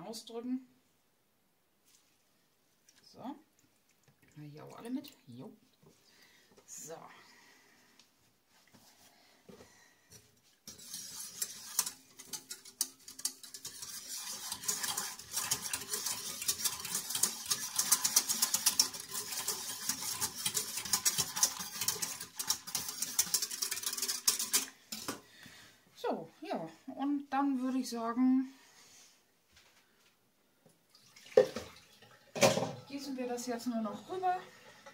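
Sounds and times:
whisk clicking in metal pot: 10.6s - 25.2s.

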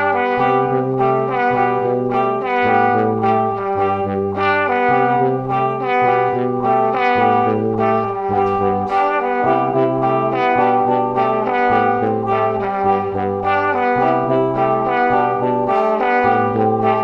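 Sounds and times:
background music with bass and chords: 0.0s - 17.0s.

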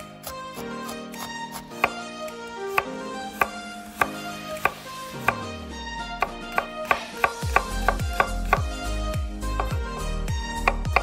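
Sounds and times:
knife chopping on wooden board: 0.0s - 2.0s, 2.7s - 5.4s, 6.2s - 8.8s, 9.5s - 9.8s, 10.6s - 11.0s
background music with strings: 0.0s - 11.0s.

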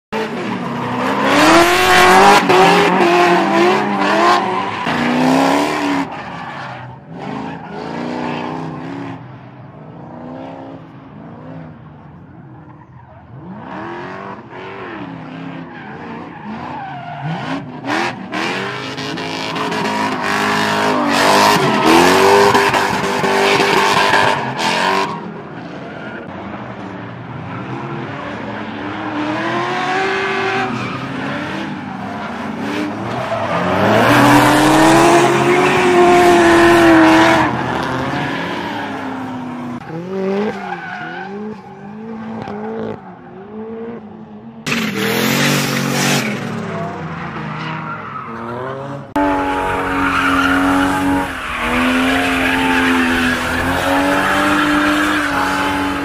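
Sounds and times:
car engines revving: 0.1s - 56.0s
tyres squealing: 49.2s - 56.0s.

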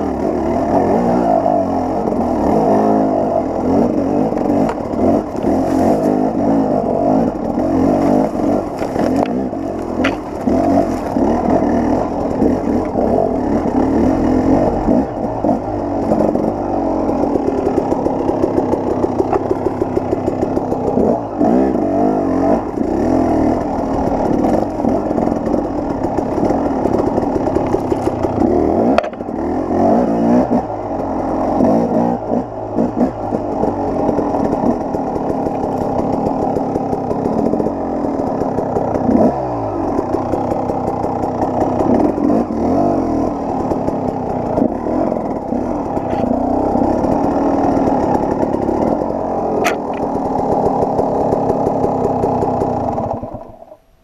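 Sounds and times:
dirt bike engine revving: 0.0s - 53.7s.

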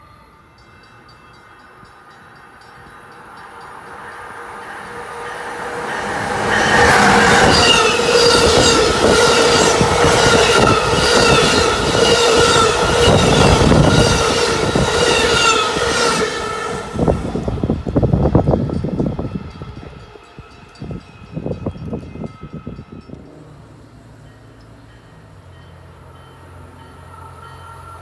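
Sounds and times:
train wheels rumbling on rails: 0.8s - 28.0s
wind buffeting microphone: 4.3s - 23.5s.

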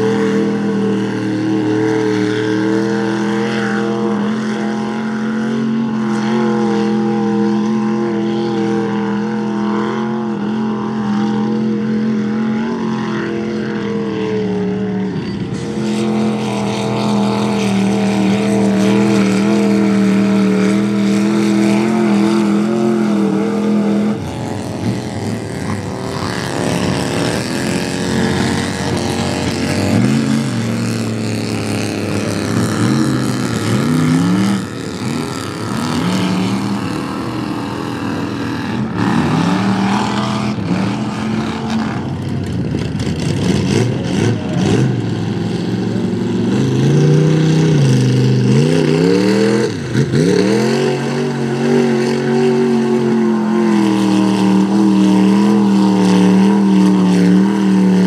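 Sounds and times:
pickup truck engine revving: 15.6s - 58.0s.

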